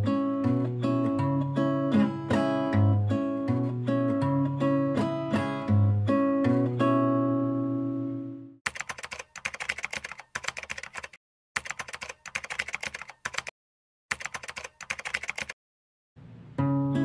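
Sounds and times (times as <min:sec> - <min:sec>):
keyboard typing clicks: 0:08.7 - 0:13.5, 0:14.1 - 0:15.6.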